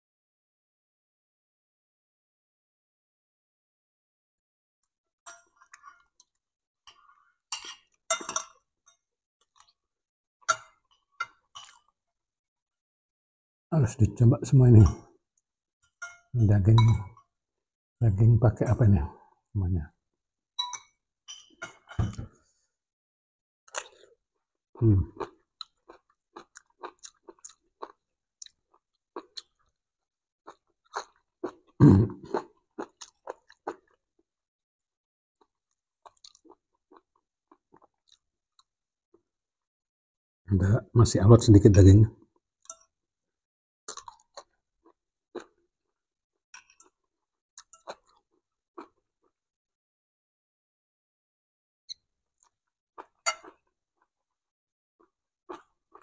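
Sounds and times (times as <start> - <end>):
cutlery clinking on a plate: 7.6 - 9.0
chewing: 25.2 - 29.8, 30.5 - 34.0, 35.4 - 38.7, 43.9 - 45.6, 55.5 - 56.0.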